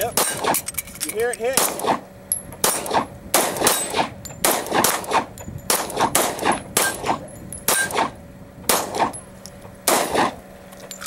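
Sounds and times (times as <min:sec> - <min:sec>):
steel target ringing: 0:00.0 - 0:08.1
handgun shots: 0:00.2 - 0:00.6, 0:01.6 - 0:02.0, 0:02.6 - 0:09.2, 0:09.9 - 0:10.4.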